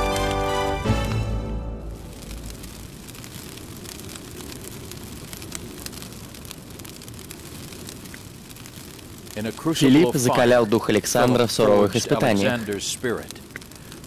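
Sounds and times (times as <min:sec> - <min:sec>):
wood fire crackling and popping: 0:00.0 - 0:14.0.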